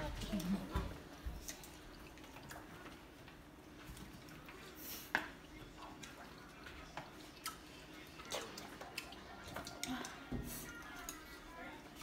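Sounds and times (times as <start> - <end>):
wet chewing: 5.6 - 11.5.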